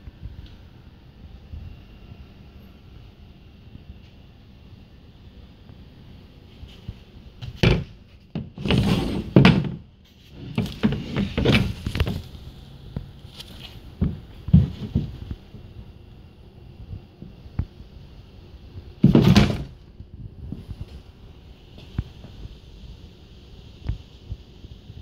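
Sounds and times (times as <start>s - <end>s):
handling knocks and thumps: 7.4s - 12.4s, 13.4s - 15.7s, 19.0s - 19.8s.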